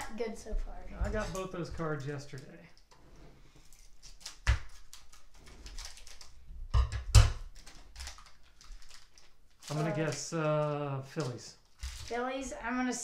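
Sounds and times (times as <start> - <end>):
foil wrapper rustling: 3.7 - 6.4, 7.5 - 12.3
scissors cutting wrapper: 3.7 - 6.4, 7.5 - 10.3.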